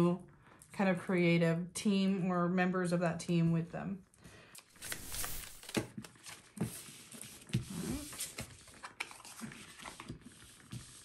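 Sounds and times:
cards tapping and sliding: 4.8 - 5.9.

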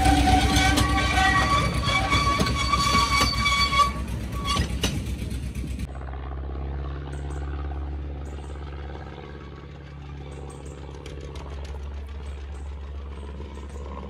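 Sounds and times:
wheels squealing: 0.0 - 5.8
train wheels clattering over rail joints: 0.0 - 5.9
distant diesel locomotive hum: 0.0 - 14.0.

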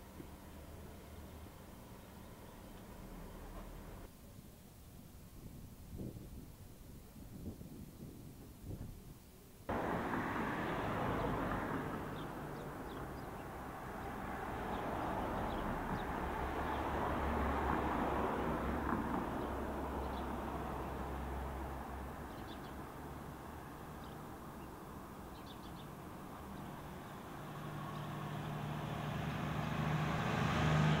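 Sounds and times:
passing traffic: 0.0 - 4.1, 9.7 - 31.0
low engine hum: 9.7 - 31.0.

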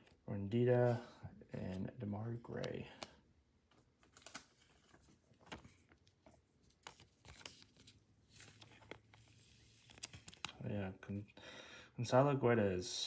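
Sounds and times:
trading cards clicking and rustling: 2.4 - 3.1, 3.7 - 10.6.

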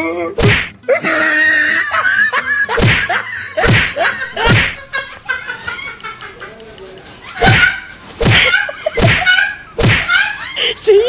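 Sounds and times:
slapstick punch hits: 0.4 - 0.8, 2.8 - 4.9, 8.2 - 10.1.

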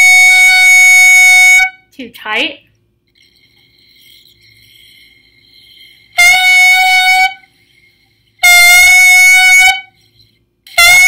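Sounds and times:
thin high clarinet tone: 0.0 - 1.9, 3.1 - 11.0
reedy clarinet notes: 6.2 - 7.5.

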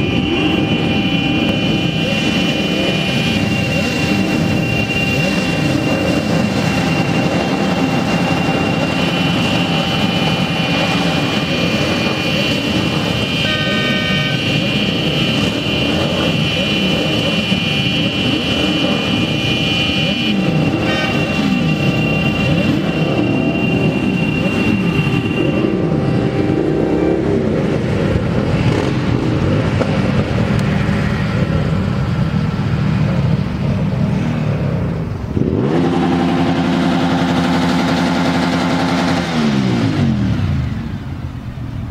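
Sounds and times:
low horn: 0.0 - 27.8
horns blasting: 0.0 - 29.8
motorcycles revving: 0.0 - 41.9.

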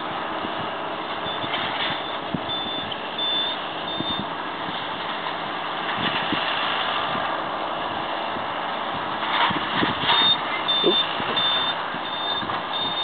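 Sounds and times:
tractor and baler running: 0.0 - 13.0
high electronic beep: 1.3 - 4.2, 10.2 - 13.0.

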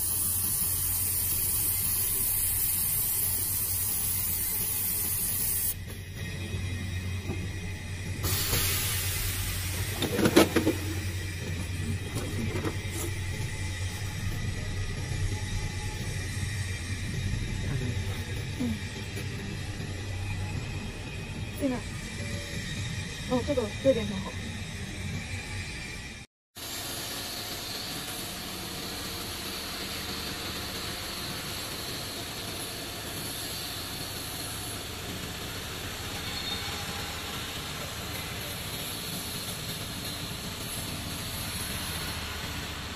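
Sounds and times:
hiss: 0.0 - 6.1, 8.2 - 11.5, 26.6 - 42.9.

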